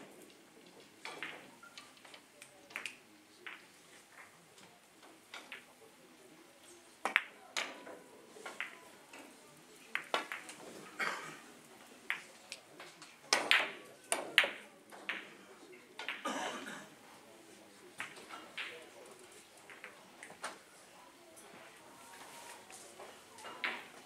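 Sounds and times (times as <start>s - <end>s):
billiard balls clicking: 0.2s - 4.3s, 7.0s - 7.8s, 8.4s - 9.3s, 9.9s - 10.8s, 11.8s - 15.4s, 16.0s - 16.2s, 18.0s - 20.6s.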